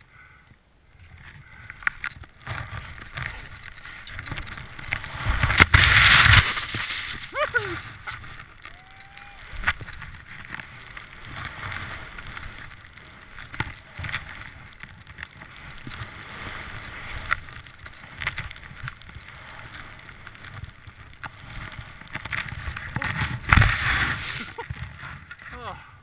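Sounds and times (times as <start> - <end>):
skis hissing through snow: 2.7 - 25.2.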